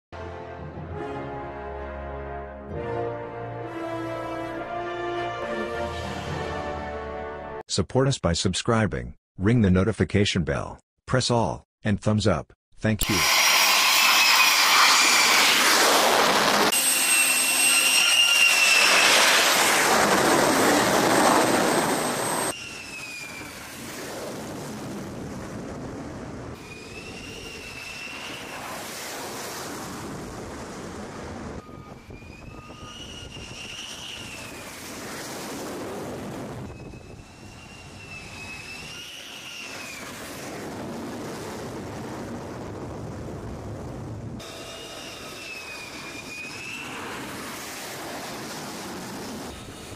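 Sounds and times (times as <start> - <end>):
jet engine roar: 13.0 - 49.9
jet turbine whine: 13.0 - 49.9.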